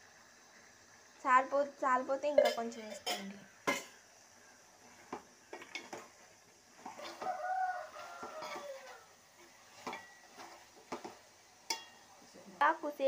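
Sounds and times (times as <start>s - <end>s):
metal spoon scraping a pot: 6.8s - 7.3s, 8.1s - 10.6s.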